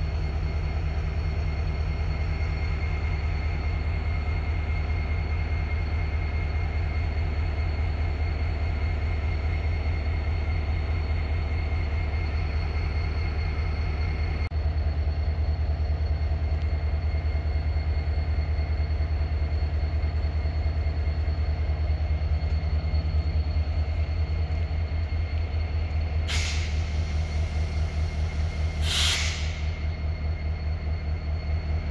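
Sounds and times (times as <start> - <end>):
electric locomotive humming: 0.0 - 31.9
compressed air hiss: 26.3 - 27.0, 28.7 - 29.8.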